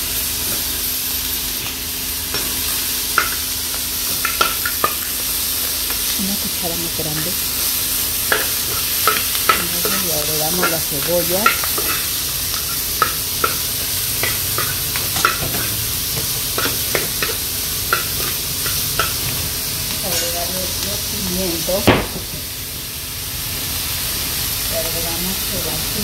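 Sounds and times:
food sizzling in a frying pan: 0:00.0 - 0:26.0
metal spoon scraping a pan: 0:07.1 - 0:15.9.

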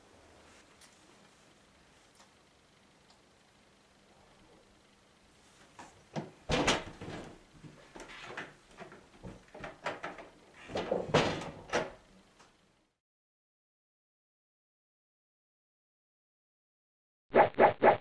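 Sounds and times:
wooden door clunks and knocks: 0:06.2 - 0:07.3, 0:09.3 - 0:12.0.

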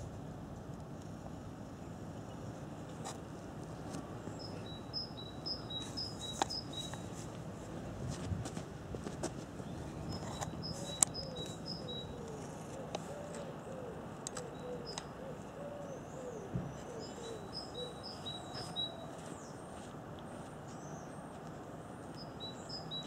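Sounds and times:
small bird's high chirps: 0:04.4 - 0:07.1, 0:10.1 - 0:12.2.

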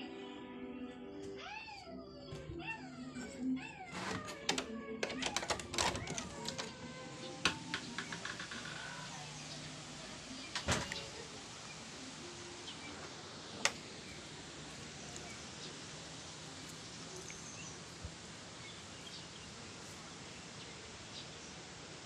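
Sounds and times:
steady background hiss: 0:06.5 - 0:22.0.

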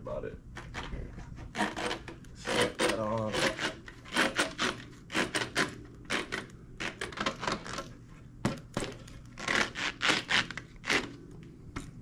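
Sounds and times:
rubber grip rubbing and squeaking: 0:09.4 - 0:11.2.

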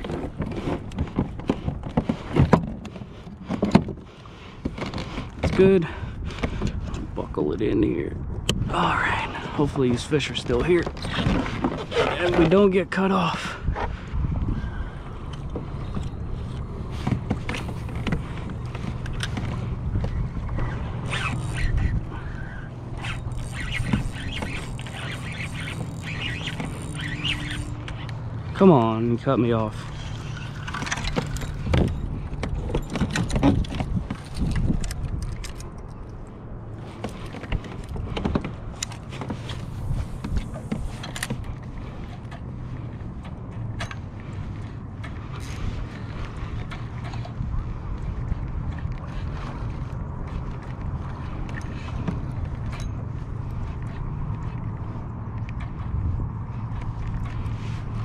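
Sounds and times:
gear knocking on boat: 0:00.0 - 0:07.1
waves lapping against plastic hull: 0:00.0 - 0:58.0
wind on microphone: 0:04.7 - 0:12.6, 0:13.6 - 0:28.4, 0:29.7 - 0:35.8, 0:36.8 - 0:43.1
steady low rumble: 0:12.2 - 0:37.1.

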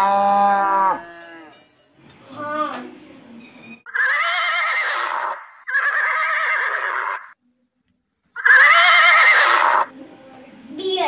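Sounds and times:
horse whinnying: 0:03.9 - 0:07.4, 0:08.4 - 0:09.9.

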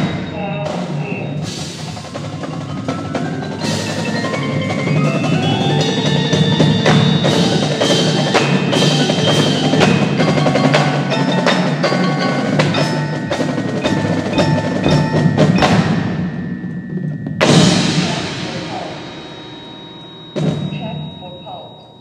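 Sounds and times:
mallet percussion and chimes: 0:00.0 - 0:22.0
loud struck hit ringing: 0:12.6 - 0:21.5.

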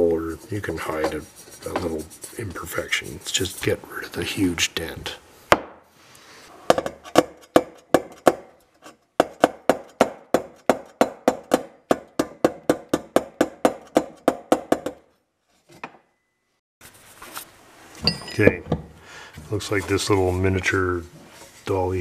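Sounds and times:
hammer tapping on metal: 0:09.2 - 0:15.0.

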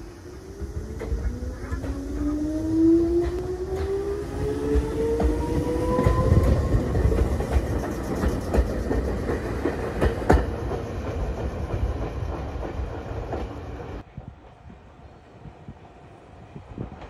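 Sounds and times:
train wheels clacking over rail joints: 0:00.6 - 0:13.8.

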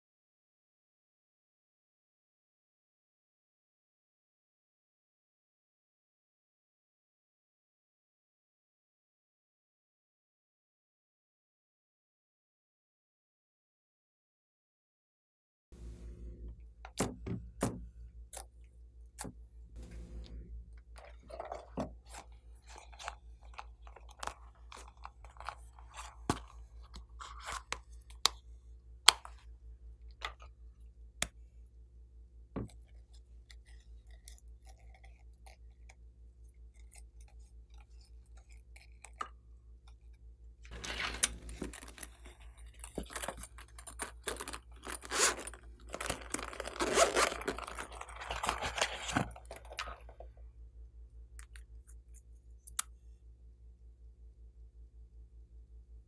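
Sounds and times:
low steady hum: 0:15.8 - 0:56.0
plastic items clicking: 0:21.0 - 0:28.4, 0:40.7 - 0:50.3
vinyl pouch crinkling: 0:21.0 - 0:28.5, 0:40.7 - 0:50.2.

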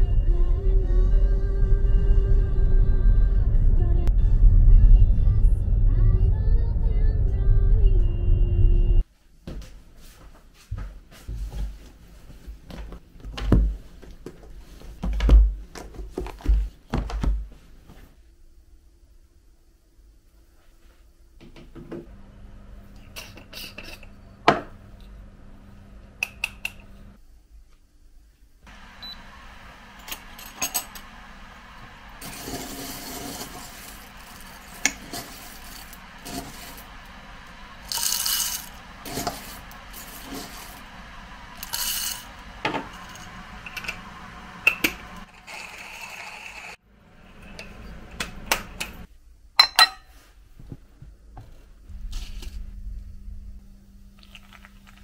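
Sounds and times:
coffee beans rattling into grinder: 0:32.2 - 0:36.9, 0:37.8 - 0:40.8, 0:41.6 - 0:42.3
kitchenware clinking and knocking: 0:49.6 - 0:50.1.

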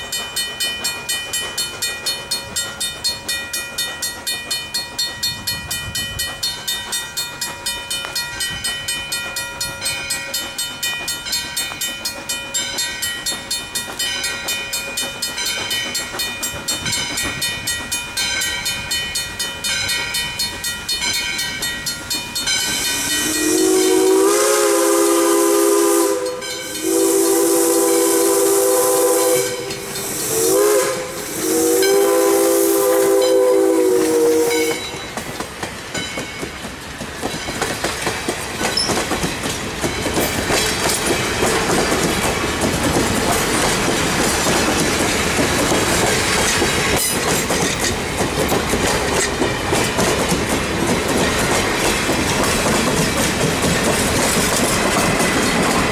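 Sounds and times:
steam locomotive exhaust beating: 0:00.0 - 0:55.9
steam whistle blasts: 0:22.9 - 0:35.0.

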